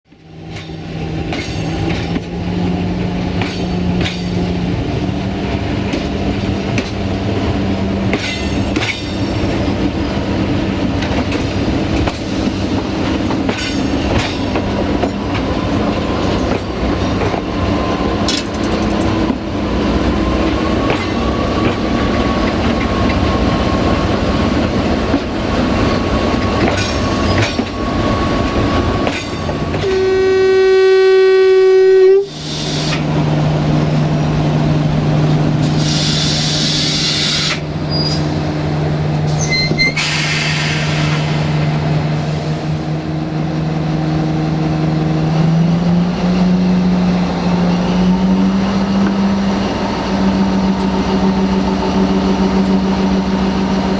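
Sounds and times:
locomotive engine drone: 0:00.1 - 0:53.9
wheels clicking over rail joints: 0:08.0 - 0:09.6, 0:18.2 - 0:19.5.

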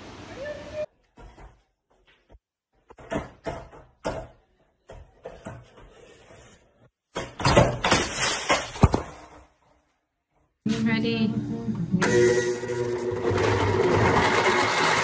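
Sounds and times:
skateboard crash and clatter: 0:07.2 - 0:09.5.

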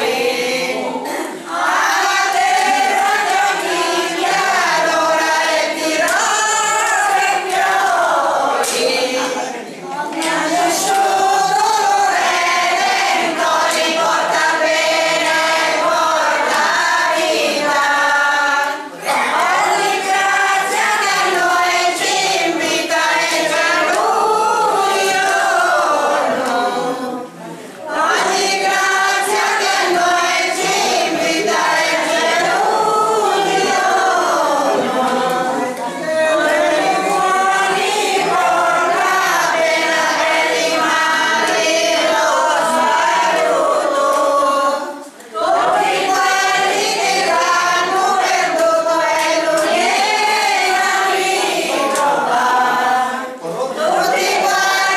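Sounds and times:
group singing unaccompanied: 0:00.0 - 0:54.9.

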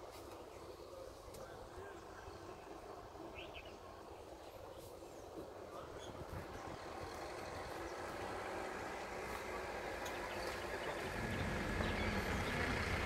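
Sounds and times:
vehicle engine running: 0:06.2 - 0:13.0.

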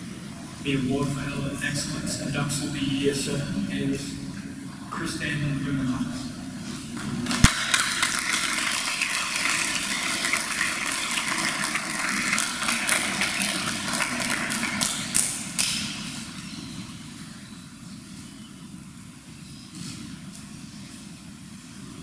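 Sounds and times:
audience clapping: 0:06.2 - 0:16.4.

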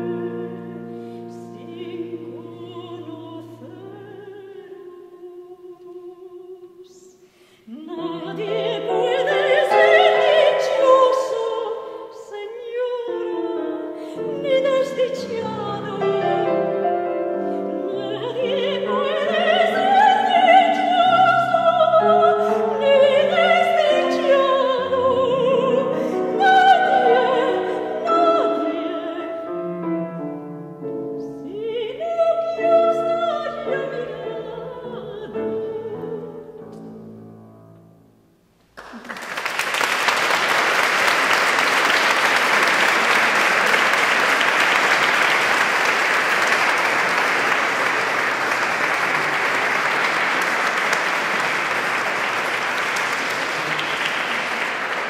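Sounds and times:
piano accompaniment: 0:00.0 - 0:05.0, 0:07.9 - 0:38.5
woman singing opera: 0:00.0 - 0:30.0, 0:31.0 - 0:36.6
audience applause: 0:38.8 - 0:55.0.

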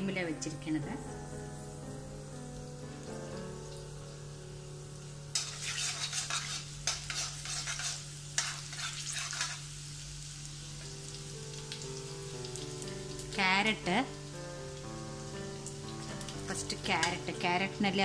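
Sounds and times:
garlic sizzling in hot oil: 0:00.0 - 0:18.0
metal spatula scraping wok: 0:05.3 - 0:09.8.

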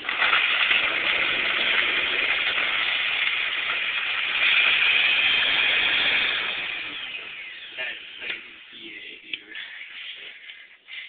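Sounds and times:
blender motor running: 0:00.0 - 0:08.8.

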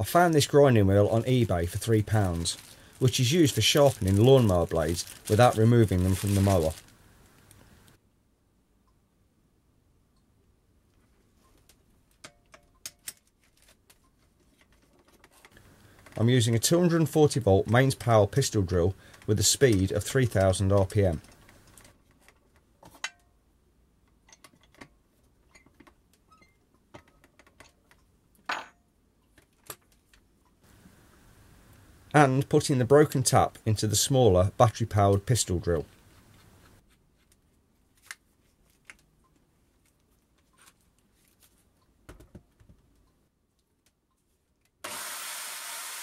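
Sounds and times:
tools clicking and knocking: 0:12.1 - 0:16.2, 0:21.2 - 0:23.3, 0:24.0 - 0:30.0
drill spinning grinding wheel: 0:44.8 - 0:46.0.

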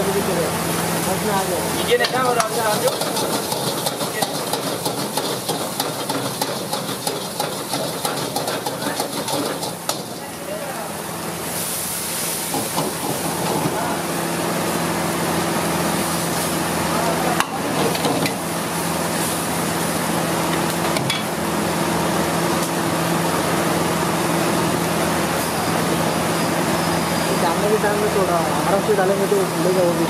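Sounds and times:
liquid sizzling in a hot wok: 0:00.0 - 0:30.0
ladle scraping a metal wok: 0:02.0 - 0:10.2.

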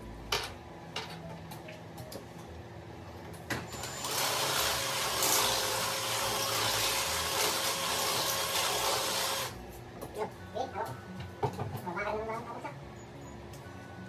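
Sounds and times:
power drill boring into wall: 0:03.7 - 0:09.5.

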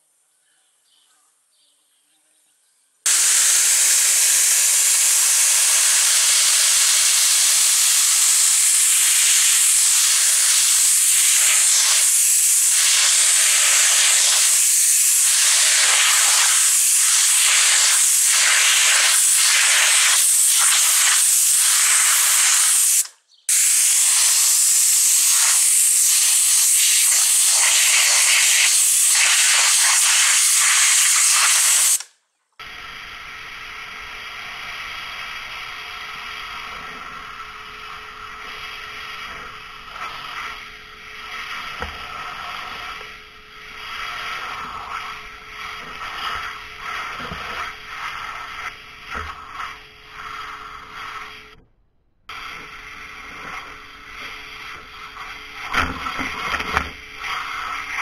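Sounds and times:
pressure washer jet hissing: 0:03.1 - 0:32.1, 0:32.7 - 0:51.6.

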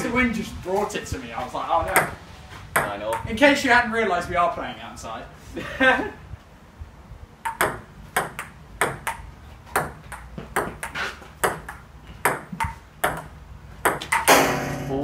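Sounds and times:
table tennis ball clicking: 0:07.4 - 0:14.3.

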